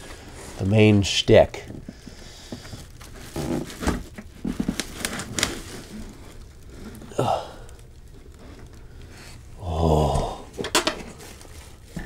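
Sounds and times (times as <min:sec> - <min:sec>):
plastic sheet rustling: 0:01.7 - 0:09.6, 0:10.4 - 0:12.0.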